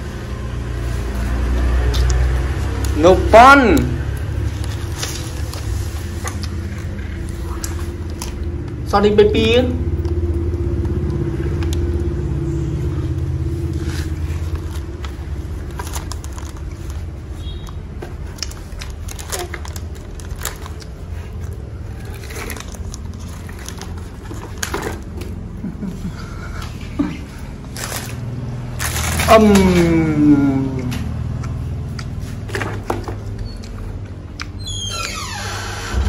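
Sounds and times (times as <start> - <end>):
plastic wrapper crinkling: 4.1 - 8.6, 13.6 - 25.6, 27.6 - 30.0
steady low rumble: 35.8 - 36.0.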